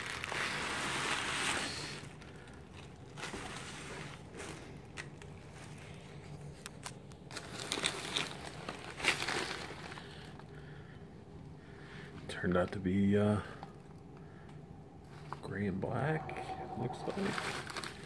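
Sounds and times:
plastic packing crinkling: 0.0 - 10.6, 17.0 - 18.0.

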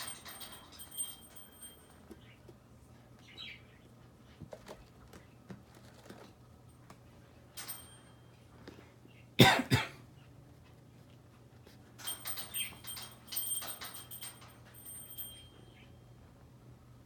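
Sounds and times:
kittens playing on carpet: 4.0 - 7.3.

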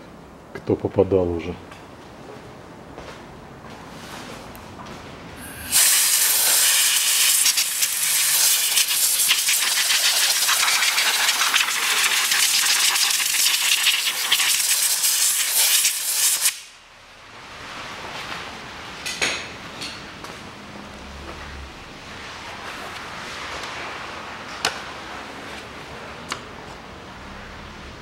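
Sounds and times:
pressurised jet hissing: 5.4 - 16.6.

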